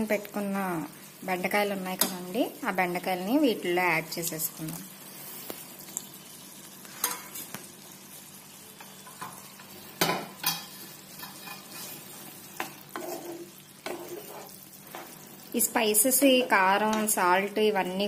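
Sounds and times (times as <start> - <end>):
low sizzle: 0.0 - 18.0
spatula stirring in frying pan: 5.0 - 17.2
spatula scraping and tapping pan: 6.8 - 7.7, 8.8 - 15.2, 16.8 - 17.2.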